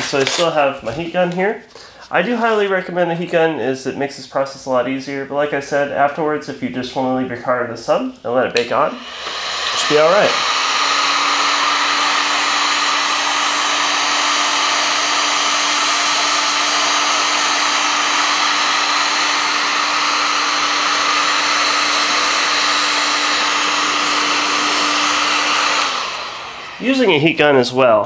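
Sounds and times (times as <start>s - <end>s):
heat gun fan humming: 8.6s - 27.6s.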